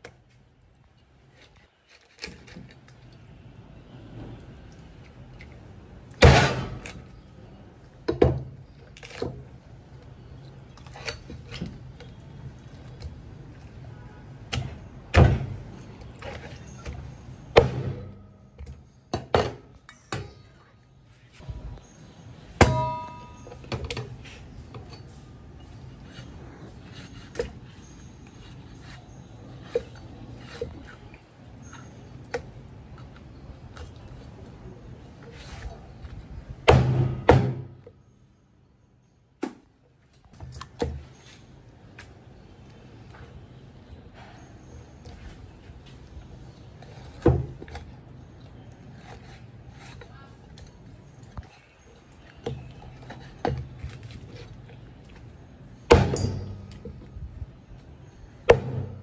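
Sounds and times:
metallic ringing chop: 22.6 - 23.6, 55.9 - 56.7.

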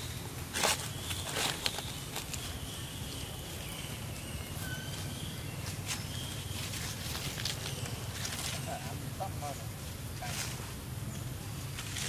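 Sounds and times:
dry leaves crackling: 0.0 - 9.0, 9.9 - 10.9, 11.5 - 12.0.

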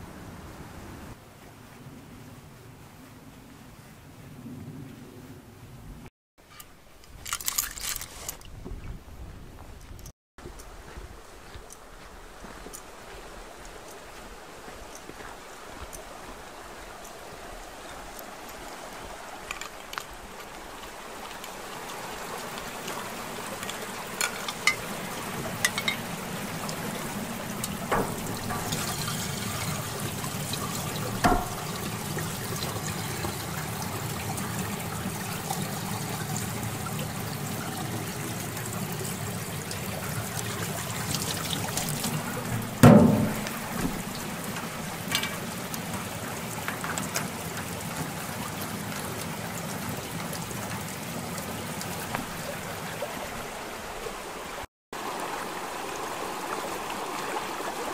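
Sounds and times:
water pouring into canteen: 20.9 - 50.9
water running into sink: 23.6 - 51.1
sharp knocks: 27.6 - 32.0, 42.1 - 44.2.

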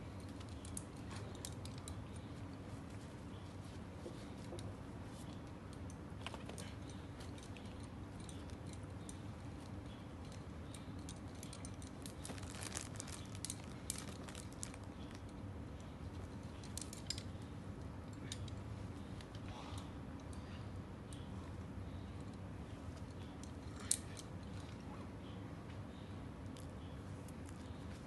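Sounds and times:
climbing gear clicking and jangling: 6.5 - 15.4, 23.1 - 24.8.

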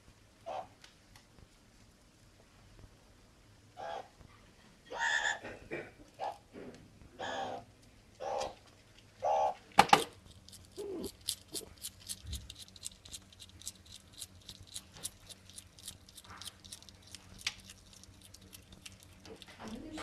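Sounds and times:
animal call: 3.8 - 4.1, 4.9 - 5.4, 7.2 - 7.6.

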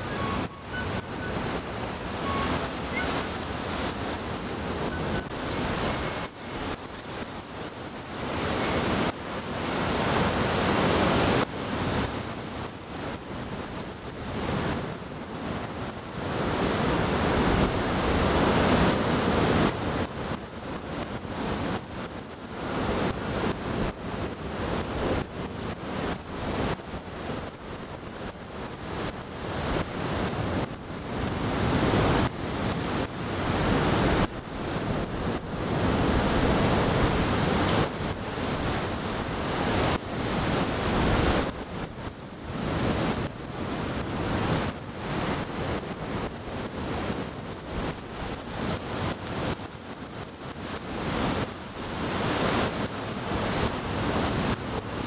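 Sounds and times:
wind buffeting microphone: 0.0 - 55.0.

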